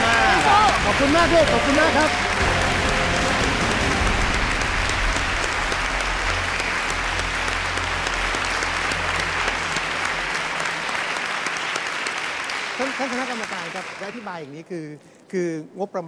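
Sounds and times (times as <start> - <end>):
audience applauding: 0.0 - 14.5.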